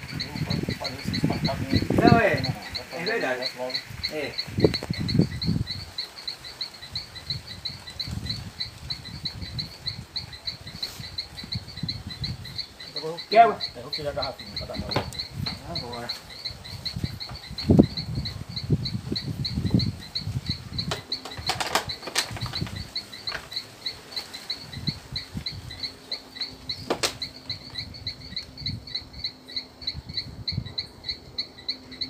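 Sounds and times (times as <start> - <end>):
high pulsing chirping: 0.0 - 32.0
plastic bottle and pipe knocking: 14.9 - 15.6, 20.9 - 22.7.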